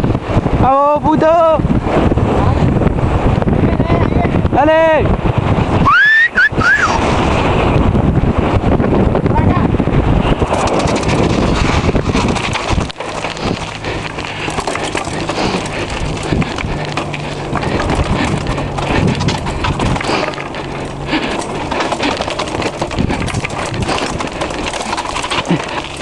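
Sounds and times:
steady low hum: 9.8 - 26.0
mountain bike rattling on rocks: 10.0 - 26.0.

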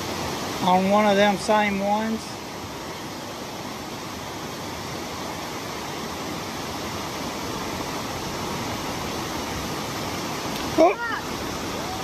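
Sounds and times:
stream water rushing: 0.0 - 12.0.

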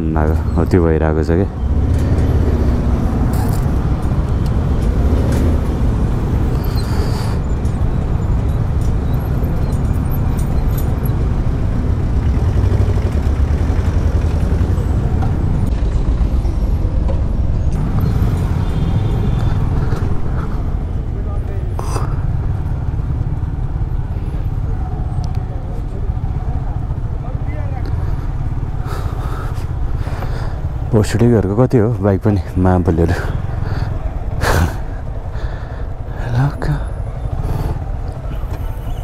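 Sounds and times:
road noise: 0.0 - 39.0
surrounding traffic: 0.0 - 39.0
motorcycle engine: 1.5 - 21.4, 36.9 - 39.0.

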